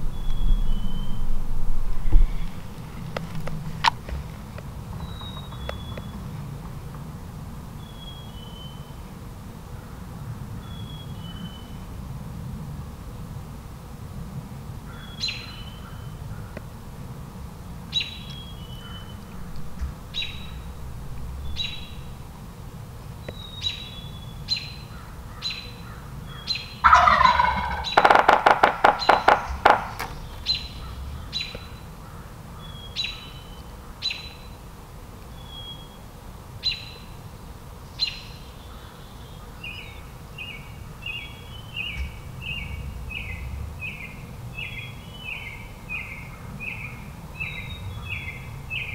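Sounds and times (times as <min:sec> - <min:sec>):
small bird chirping: 0:00.0 - 0:01.4, 0:04.9 - 0:06.4, 0:07.8 - 0:09.0, 0:10.6 - 0:11.8, 0:17.9 - 0:20.8, 0:21.4 - 0:22.3, 0:23.2 - 0:34.6, 0:37.9 - 0:48.9
turkey gobbling: 0:26.8 - 0:31.5
turkey low drumming: 0:26.8 - 0:31.8.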